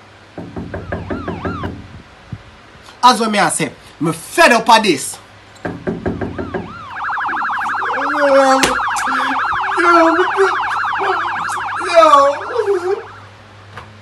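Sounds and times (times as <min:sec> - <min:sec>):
rapid warbling siren: 0:00.7 - 0:02.0, 0:06.1 - 0:13.4
person's voice: 0:07.8 - 0:13.1.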